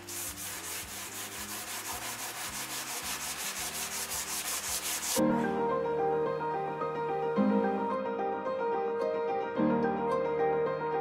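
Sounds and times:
hand sanding wood: 0:00.0 - 0:05.2
piano music: 0:00.0 - 0:11.0.

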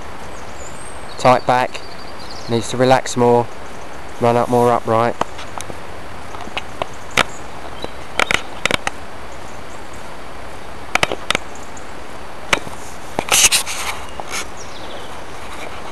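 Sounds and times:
steady hiss: 0:00.0 - 0:15.9
sharp clicks and knocks: 0:05.2 - 0:09.0, 0:10.9 - 0:11.5, 0:12.5 - 0:13.5.

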